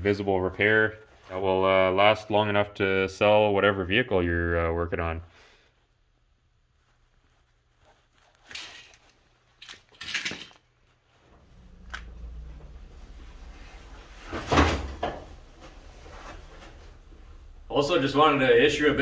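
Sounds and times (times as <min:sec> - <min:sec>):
thump and shuffling: 0:11.2 - 0:18.3
low steady hum: 0:11.2 - 0:19.0
knocks and scrapes: 0:11.3 - 0:18.3.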